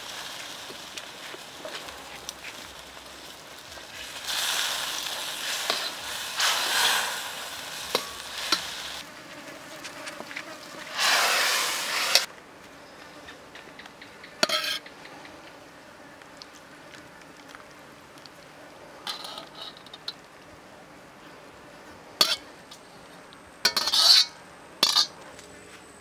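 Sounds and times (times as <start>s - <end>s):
sauce sizzling in a wok: 0.0s - 9.1s, 10.9s - 12.3s
metallic scrape: 3.8s - 9.0s, 10.9s - 12.3s, 14.4s - 14.9s, 23.7s - 25.2s
metal ladle clinking on wok: 23.7s - 25.1s.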